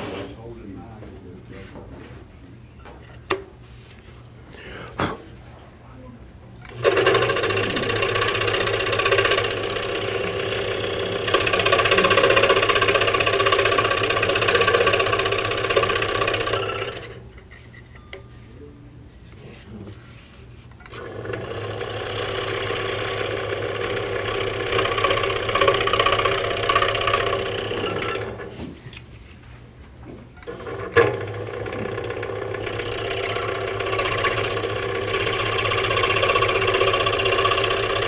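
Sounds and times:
scroll saw rattling: 6.7s - 17.2s, 20.9s - 28.5s, 30.5s - 38.0s.

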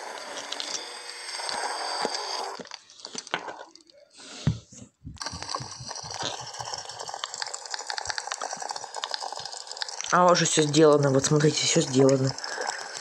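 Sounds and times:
crackling with clicks: 5.2s - 13.0s.

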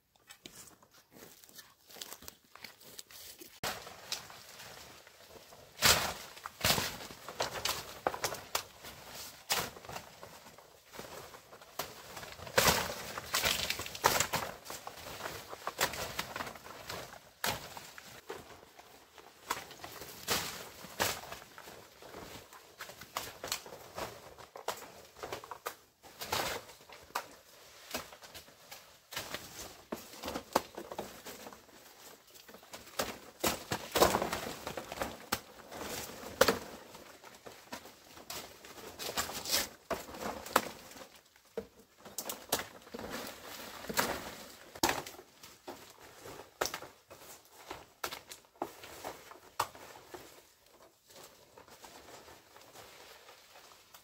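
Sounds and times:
leaves rustling: 0.5s - 24.9s, 26.1s - 41.3s.

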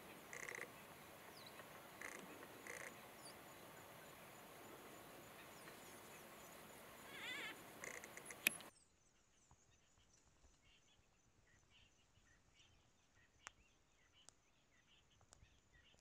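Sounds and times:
pups squeaky calls: 0.1s - 0.8s, 2.0s - 3.0s, 7.0s - 8.5s
sharp click: 7.8s - 8.7s
soft clicks: 7.8s - 8.7s.

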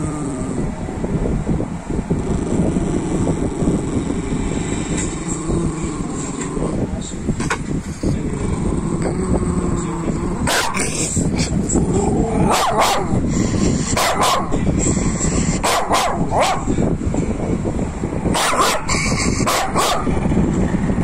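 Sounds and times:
dog barking: 10.5s - 10.9s, 12.4s - 13.2s, 14.0s - 14.6s, 15.6s - 16.7s, 18.3s - 20.2s.

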